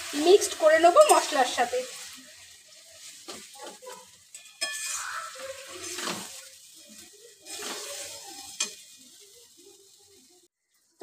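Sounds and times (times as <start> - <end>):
light sizzle: 0.0 - 11.0
spatula scraping metal pan: 3.0 - 6.6, 7.4 - 9.0
metallic clinks against pan: 4.3 - 5.1.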